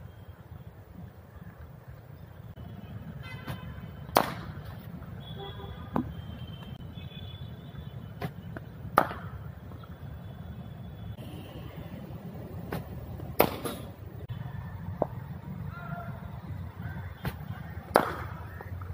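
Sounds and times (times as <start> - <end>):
traffic rumble: 0.0 - 18.9
distant horn toots: 2.6 - 4.2, 5.2 - 8.6
cricket bat striking ball: 4.1 - 4.6, 8.2 - 9.5, 12.7 - 13.9, 17.2 - 18.7.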